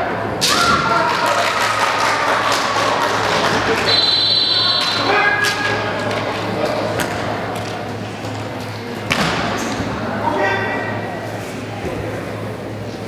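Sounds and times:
people shouting: 0:00.4 - 0:05.9.

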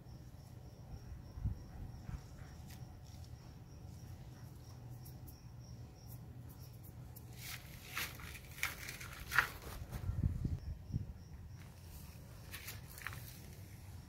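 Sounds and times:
rustles and scrapes: 0:06.5 - 0:10.4, 0:11.6 - 0:14.0.

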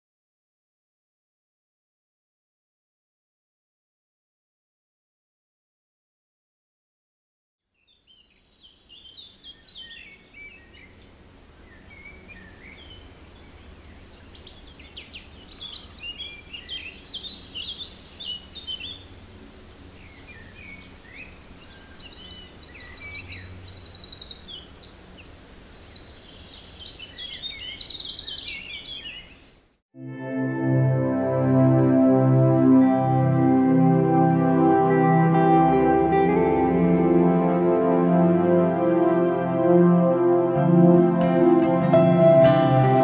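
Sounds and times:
small birds chirping and warbling: 0:07.8 - 0:19.1, 0:19.8 - 0:29.6.

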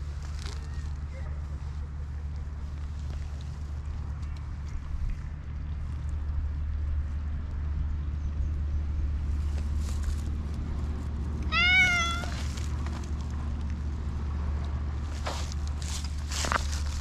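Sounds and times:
cat meowing: 0:11.5 - 0:12.4.

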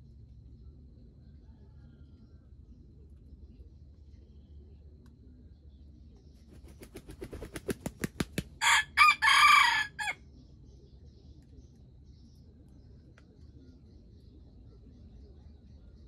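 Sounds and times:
rooster crowing: 0:01.3 - 0:02.4, 0:08.6 - 0:10.2
rooster flapping wings: 0:06.6 - 0:08.6.

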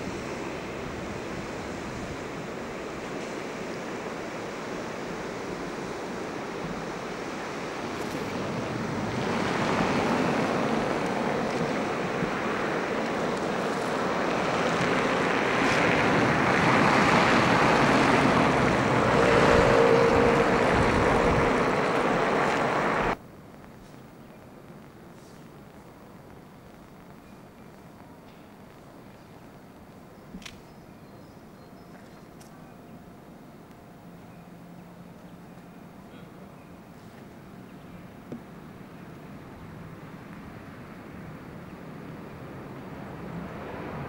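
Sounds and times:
water rushing over a weir: 0:00.0 - 0:23.2
wind buffeting microphone: 0:06.4 - 0:23.2.

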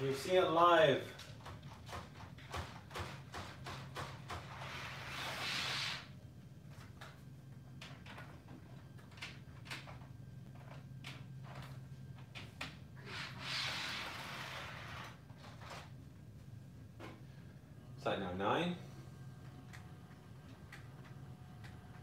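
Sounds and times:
steady low hum: 0:00.0 - 0:22.0
short hissing rushes: 0:04.7 - 0:06.2.

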